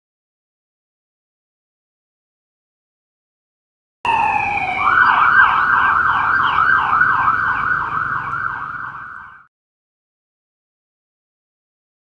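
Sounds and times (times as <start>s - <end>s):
police siren wailing and yelping: 4.1s - 9.5s.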